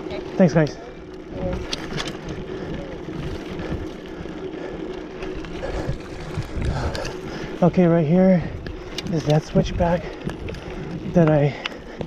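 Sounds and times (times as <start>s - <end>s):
bike tyres on dirt and gravel: 0.0s - 12.0s
bike knocks and rattles: 1.3s - 12.0s.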